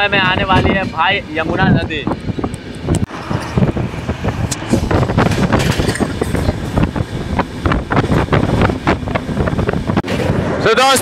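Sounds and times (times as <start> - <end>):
train coach rumbling on rails: 0.0 - 11.0
clatter of train wheels: 4.5 - 10.3.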